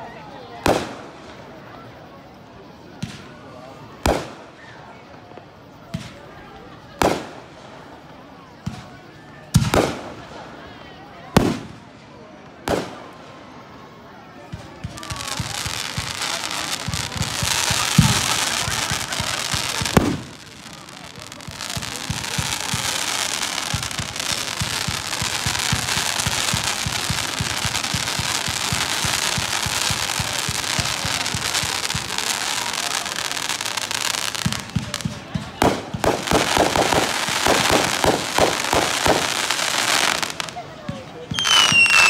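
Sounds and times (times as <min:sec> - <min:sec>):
fireworks crackling: 0:00.0 - 0:42.0
loud firework bangs: 0:09.5 - 0:10.2, 0:11.3 - 0:11.8, 0:12.6 - 0:13.2, 0:14.5 - 0:40.6.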